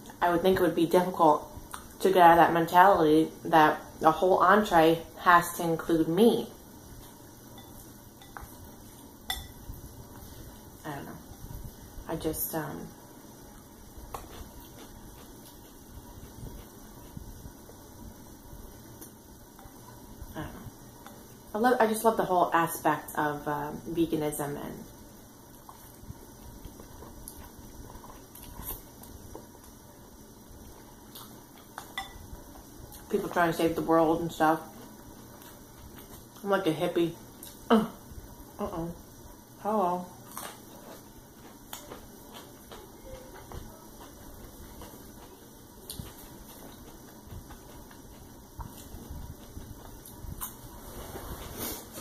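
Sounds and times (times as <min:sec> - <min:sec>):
low background hum: 0:00.0 - 0:52.0
soft chewing of noodles: 0:06.7 - 0:12.0, 0:13.0 - 0:21.5, 0:24.9 - 0:33.1, 0:34.6 - 0:36.5, 0:40.1 - 0:52.0.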